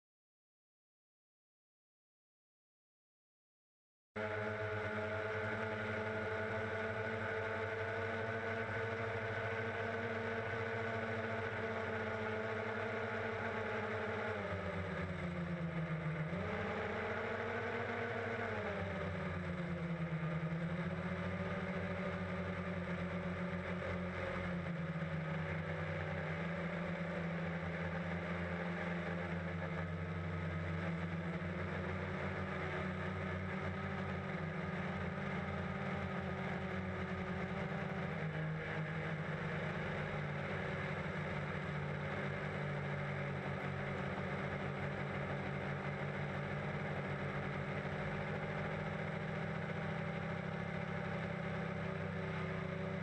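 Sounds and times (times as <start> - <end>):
drone propellers humming: 4.2 - 49.6.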